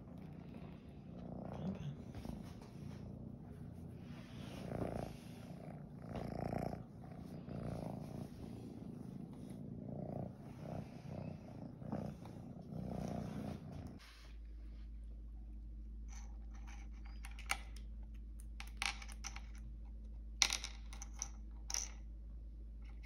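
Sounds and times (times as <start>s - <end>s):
cat purring: 0.0s - 14.4s.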